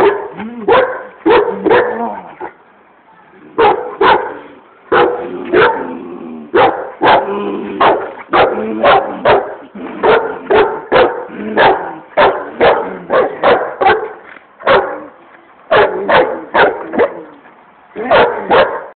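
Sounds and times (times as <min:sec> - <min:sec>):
dog barking rapidly: 0:00.0 - 0:02.0, 0:03.6 - 0:05.9, 0:06.6 - 0:15.0, 0:15.7 - 0:17.2, 0:18.1 - 0:18.9.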